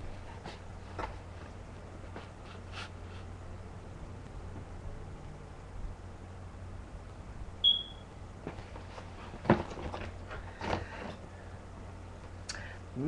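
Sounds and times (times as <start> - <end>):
low electrical hum: 0.0 - 13.0
short high beep: 7.6 - 8.1
handling knocks and rustles: 8.4 - 11.2.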